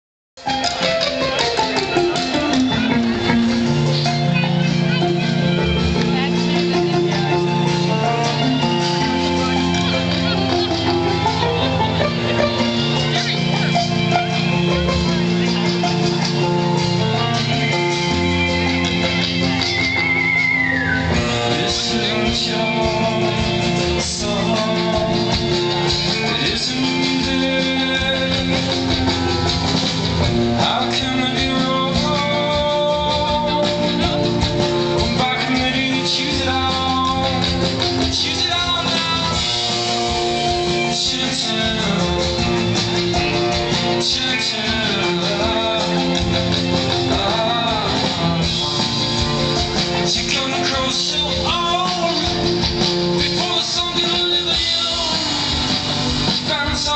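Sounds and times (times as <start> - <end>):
drum kit: 0.4 - 56.9
guitars: 0.4 - 56.9
person singing: 0.6 - 56.9.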